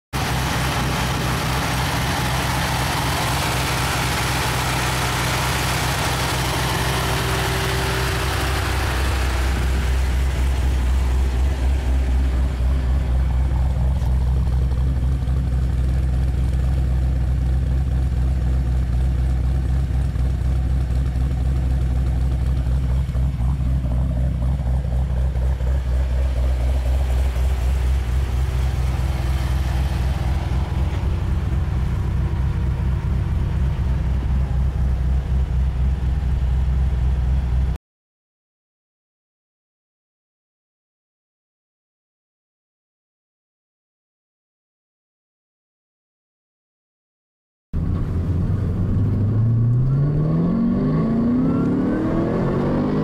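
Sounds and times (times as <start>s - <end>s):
car engine idling: 0.2s - 37.8s.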